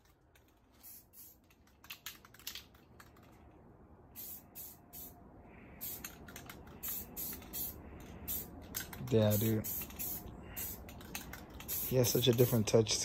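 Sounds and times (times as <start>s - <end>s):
spray paint can bursts: 0.8s - 2.6s, 4.2s - 5.2s, 5.8s - 12.7s.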